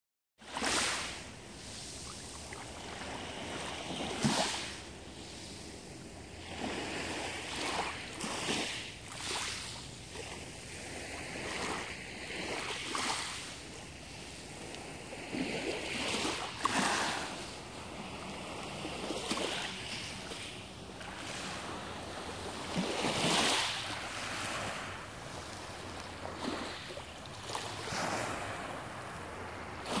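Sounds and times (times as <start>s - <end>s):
small waves washing onto pebbles: 0.5s - 5.8s, 6.4s - 30.0s.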